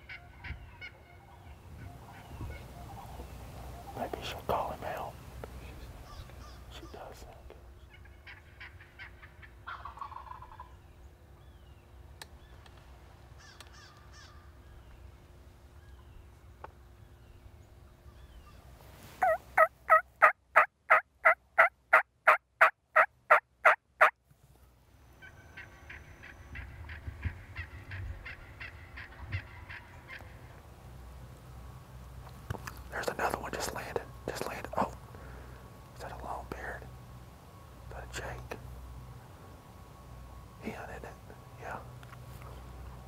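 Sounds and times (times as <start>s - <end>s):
loud turkey yelps: 0.0s - 3.2s, 7.9s - 10.8s, 19.2s - 24.2s, 25.2s - 30.3s
fainter quick turkey calling: 7.9s - 10.7s, 19.2s - 24.1s.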